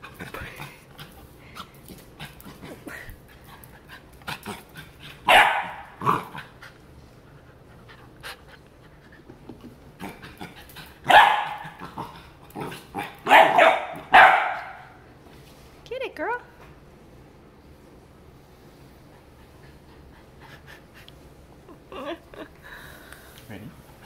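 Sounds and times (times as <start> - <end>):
puppy barking: 5.3 - 6.0, 11.1 - 11.8, 13.0 - 15.0.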